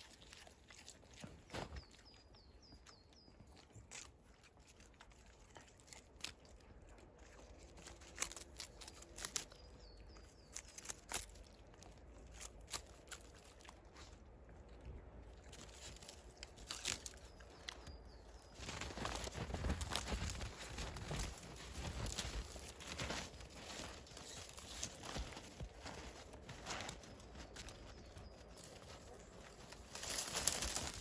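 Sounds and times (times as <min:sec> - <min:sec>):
dog chewing dry leaves: 0:00.0 - 0:02.1, 0:03.4 - 0:14.4, 0:15.2 - 0:17.9, 0:18.5 - 0:31.0
leaves rustling: 0:18.6 - 0:27.8, 0:28.6 - 0:31.0.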